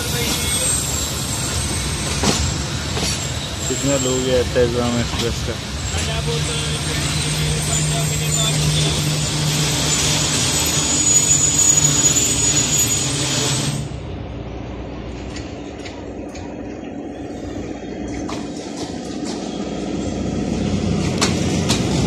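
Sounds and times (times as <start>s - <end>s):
rail clicks: 0.0s - 14.0s, 14.6s - 22.0s
approaching locomotive rumble: 0.0s - 22.0s
train rushing rumble: 0.0s - 22.0s
wheel-on-rail rumble: 12.8s - 22.0s.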